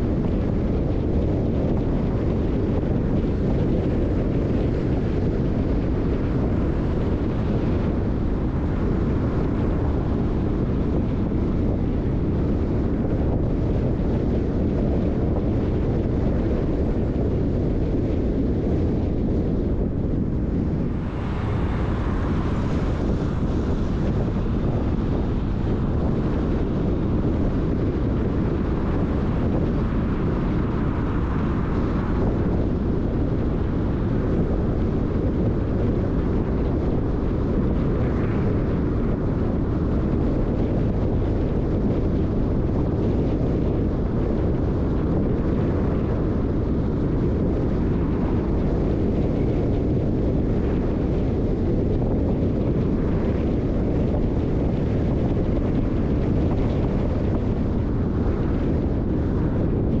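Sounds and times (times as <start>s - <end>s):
wind noise: 0.0s - 60.0s
car tyres and engine rumble: 19.1s - 35.1s.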